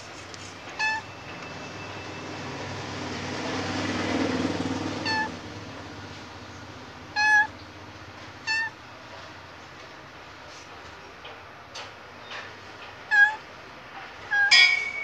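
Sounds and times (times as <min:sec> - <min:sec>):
cat meowing: 0:00.7 - 0:01.1, 0:05.0 - 0:05.3, 0:07.1 - 0:07.6, 0:08.4 - 0:08.8, 0:13.1 - 0:13.4, 0:14.3 - 0:14.6.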